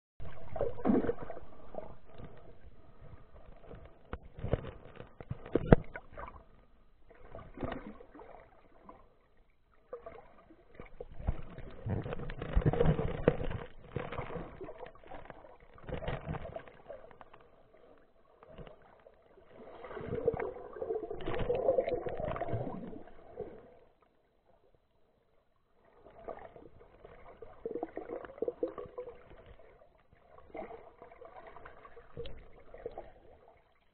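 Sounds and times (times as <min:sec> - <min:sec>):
water swishing underwater: 0:00.2 - 0:33.9.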